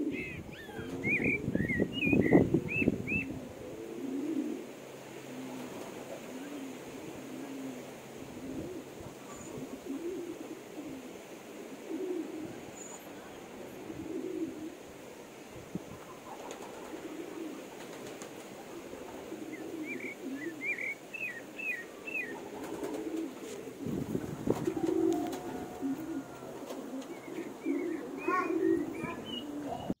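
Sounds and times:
low soft bird call: 24.8 - 30.0.

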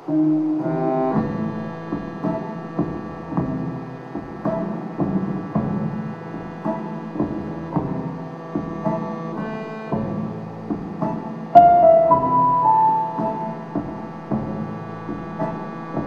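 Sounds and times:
drum beat: 1.2 - 9.1, 9.9 - 16.0
loud ringing note: 11.6 - 13.7.

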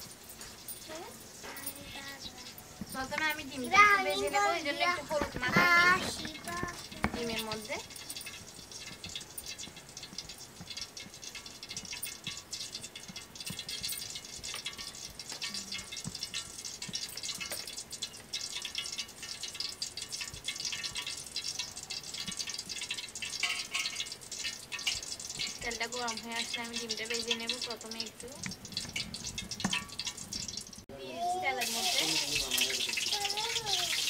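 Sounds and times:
oil crackling and popping in pan: 0.0 - 34.0.

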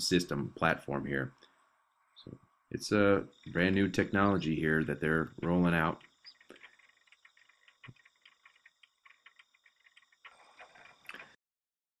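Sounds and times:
faint ticking and clicking: 3.2 - 11.4.

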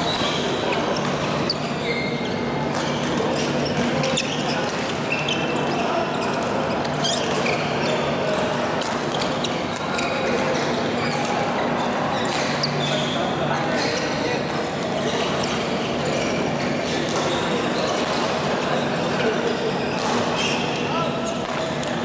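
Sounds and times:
shoes squeaking on court floor: 0.0 - 22.0
badminton rackets hitting shuttlecocks: 21.4 - 22.0.

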